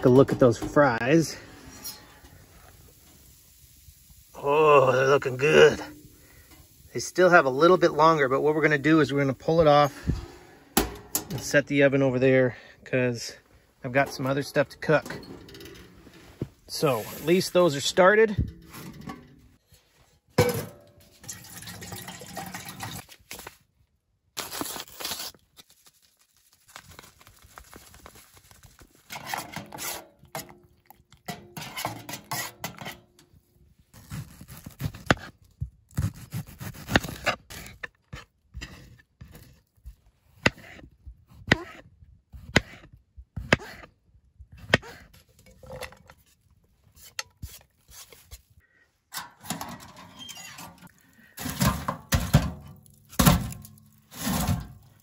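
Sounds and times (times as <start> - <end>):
metal cookware knocking and clinking: 10.8 - 11.5, 20.4 - 22.8
food scraped from wooden board: 29.1 - 30.3.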